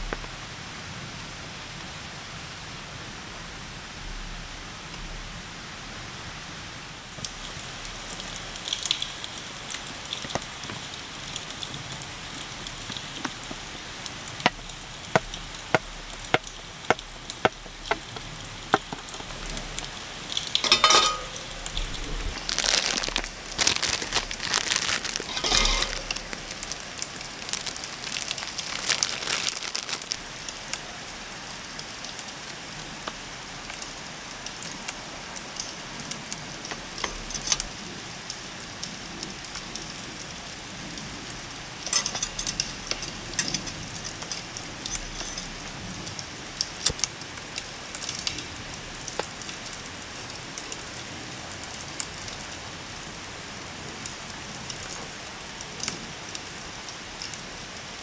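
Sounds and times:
steady rain: 0:00.0 - 0:58.0
cellophane wrapper crinkling: 0:20.5 - 0:30.3, 0:42.0 - 0:45.6.

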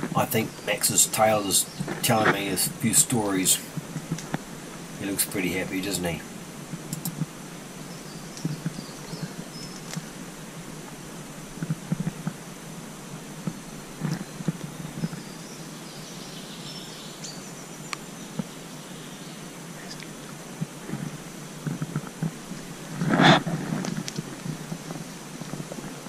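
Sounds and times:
steady outdoor hiss: 0:00.0 - 0:26.0
faint bird chirps: 0:07.8 - 0:09.9.

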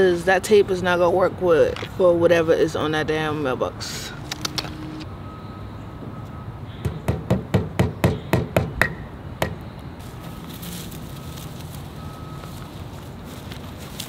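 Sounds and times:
hammer striking wooden post: 0:06.8 - 0:09.6.

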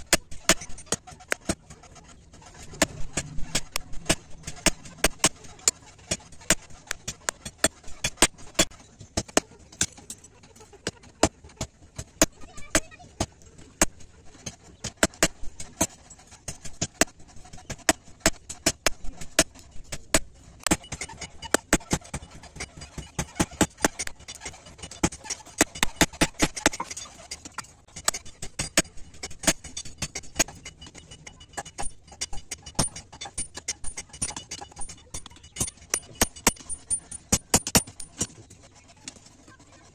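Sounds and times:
hammer striking metal on anvil: 0:28.0 - 0:38.3.

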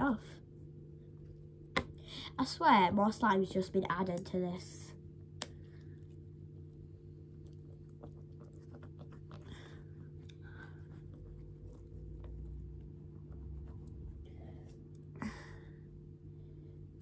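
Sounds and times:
slime squelches: 0:05.3 - 0:15.1
sticky slime squishing: 0:05.3 - 0:15.1.

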